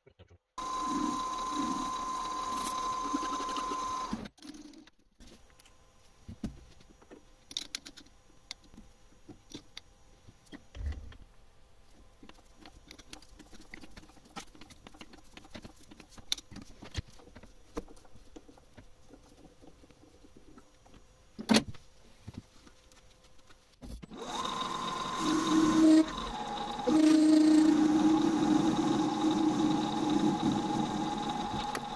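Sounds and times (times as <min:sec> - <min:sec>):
lathe whine: 0:00.6 - 0:04.2, 0:24.1 - 0:31.9.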